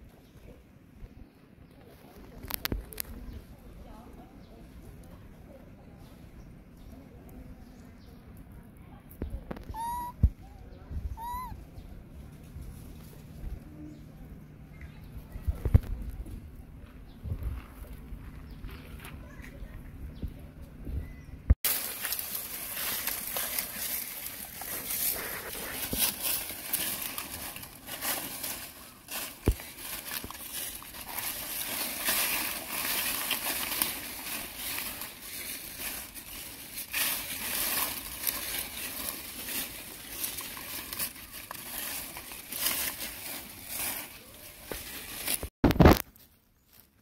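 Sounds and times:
dry leaves crackling and rustling: 1.8 - 6.0, 9.4 - 10.2, 11.2 - 14.2, 21.6 - 47.0.

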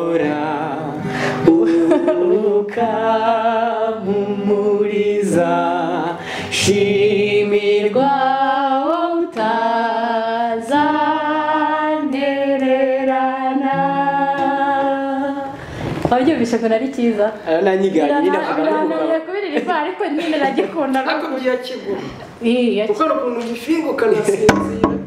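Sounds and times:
man and woman singing in harmony: 0.0 - 15.9
acoustic guitar: 0.0 - 21.0, 24.2 - 25.0.

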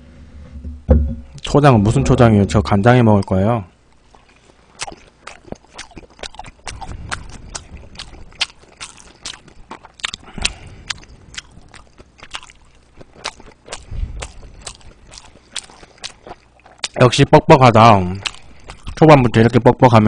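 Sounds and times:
open-mouthed chewing: 3.9 - 19.9.

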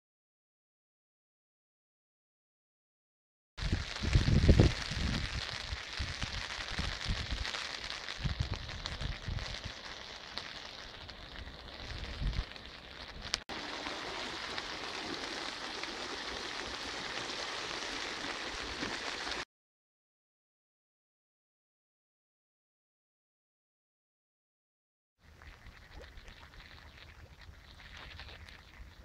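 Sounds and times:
wind buffeting microphone: 3.6 - 7.5, 11.8 - 12.4
rain hissing: 3.6 - 19.4
rushing floodwater: 13.5 - 19.4.

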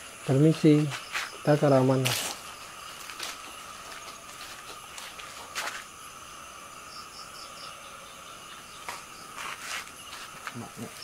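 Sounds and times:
night insects chorus: 0.0 - 11.0.

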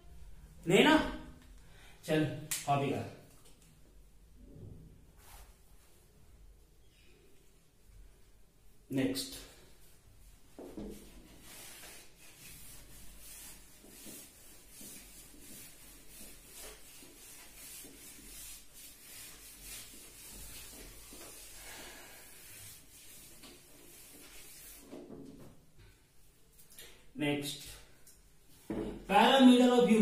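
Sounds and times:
cloth rubbing whiteboard: 5.1 - 6.2, 9.8 - 25.6.

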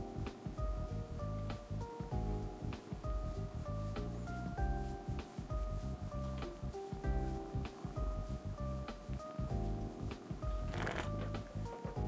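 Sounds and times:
background music with bass line: 0.0 - 12.0
brief rustling: 10.7 - 12.0.

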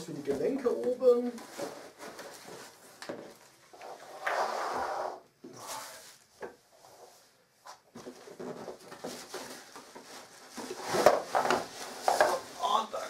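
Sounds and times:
cardboard rustle: 0.4 - 3.5, 7.9 - 13.0
cardboard box scraping slide: 3.9 - 5.2.

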